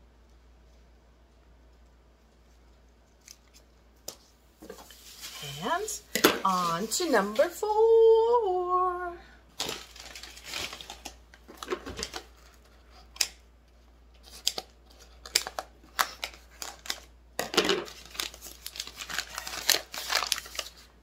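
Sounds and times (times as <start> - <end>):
paper crinkling and tearing: 9.6 - 13.3, 14.2 - 17.1, 17.8 - 21.0.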